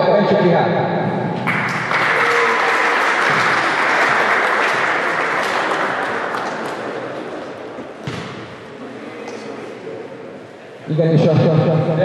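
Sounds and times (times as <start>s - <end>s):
crowd applauding: 1.4s - 7.8s.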